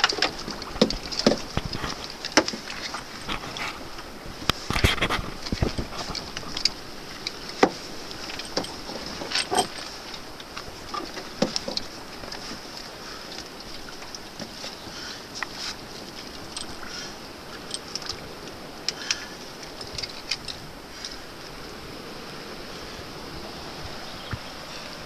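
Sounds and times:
knocks and clicks of gear handling: 0.0s - 3.2s, 5.4s - 12.7s
steady hiss: 0.0s - 25.0s.

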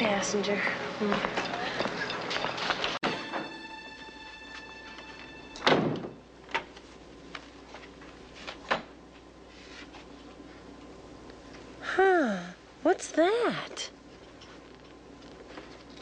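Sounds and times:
door shutting thud: 5.6s - 6.7s.

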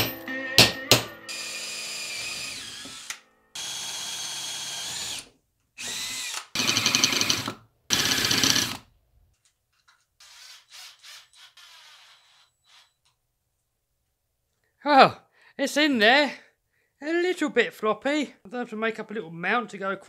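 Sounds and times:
power drill bursts: 0.9s - 8.8s, 10.2s - 13.0s.

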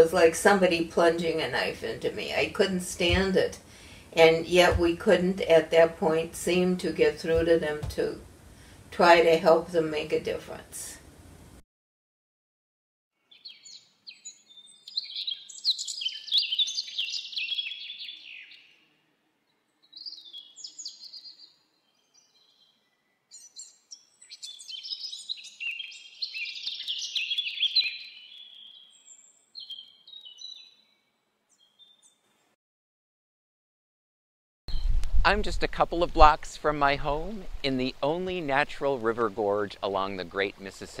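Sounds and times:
songbird singing: 13.2s - 32.4s, 34.7s - 41.0s.

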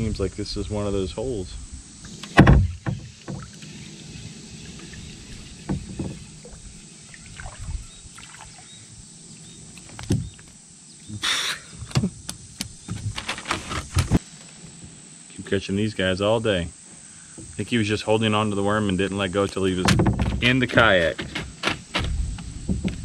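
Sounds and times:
knocks against plastic hull: 2.3s - 3.5s, 5.6s - 6.6s, 19.8s - 23.0s.

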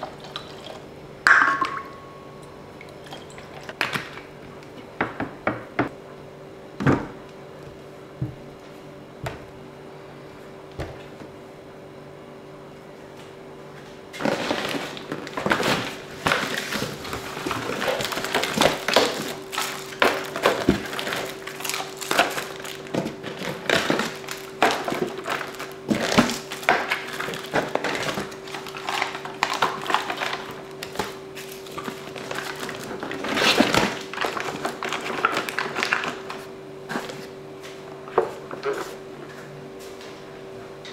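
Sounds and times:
faint steady hum: 0.0s - 40.9s
foil pouches crinkling: 14.2s - 37.3s.

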